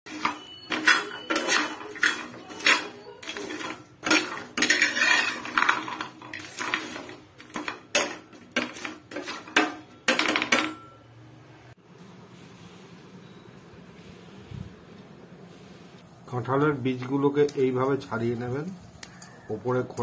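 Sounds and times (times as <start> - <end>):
hard seeds rattling in pan: 0.1 - 9.6
metal spatula scraping frying pan: 0.1 - 10.4.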